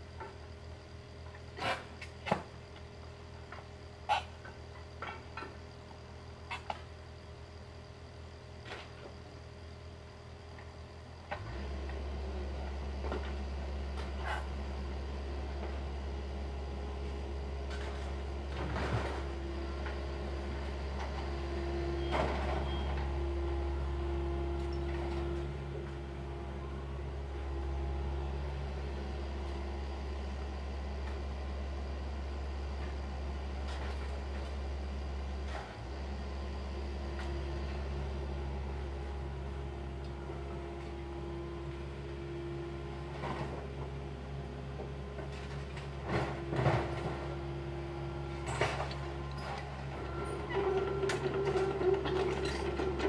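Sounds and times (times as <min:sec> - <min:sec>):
excavator engine running: 0:11.0 - 0:53.0.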